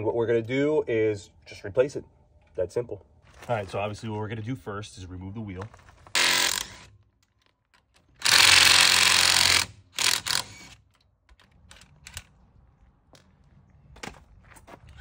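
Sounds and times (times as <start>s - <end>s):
impact driver hammering: 6.2s - 6.8s.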